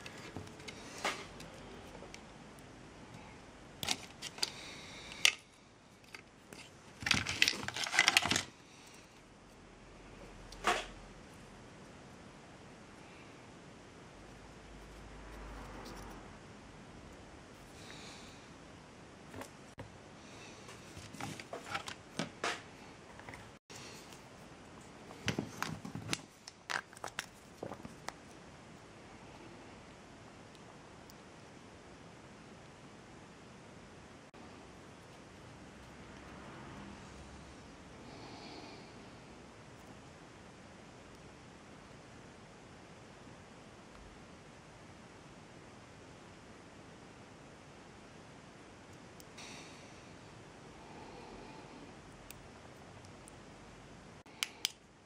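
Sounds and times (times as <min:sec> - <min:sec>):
plastic parts being handled: 0:03.8 - 0:08.6, 0:20.9 - 0:24.3, 0:25.0 - 0:28.3
small parts clicking and rattling: 0:03.8 - 0:09.0.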